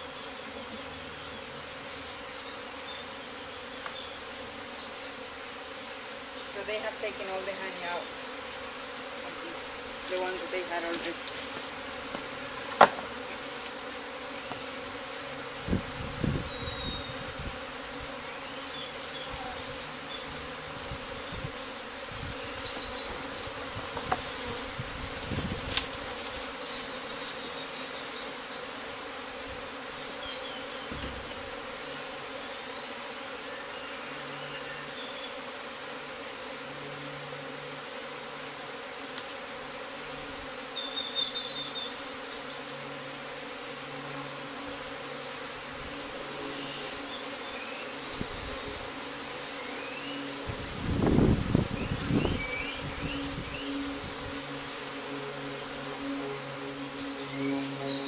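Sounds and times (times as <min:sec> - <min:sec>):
bees buzzing: 0:00.0 - 0:58.0
knocks of hive frames handled: 0:10.9 - 0:13.8, 0:22.7 - 0:24.6, 0:30.8 - 0:31.6.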